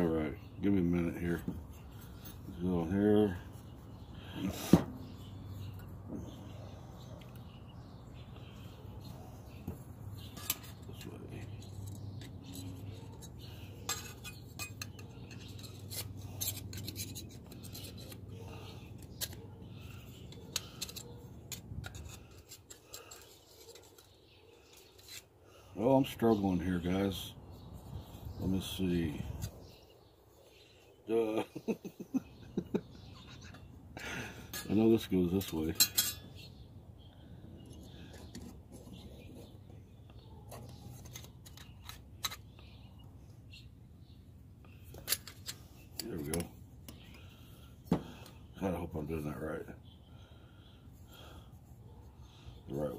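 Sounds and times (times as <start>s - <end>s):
steel plates clicking and scraping: 10.3s - 25.3s, 34.5s - 36.4s
metal plates clinking and scraping: 11.6s - 18.2s, 35.4s - 36.4s.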